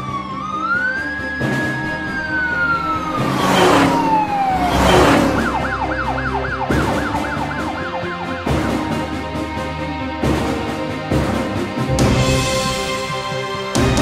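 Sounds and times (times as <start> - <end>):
cartoon siren wailing: 0.0 - 8.4
fast yelp siren: 0.0 - 8.6
background music: 0.0 - 14.0
vehicles whooshing past: 1.5 - 7.7.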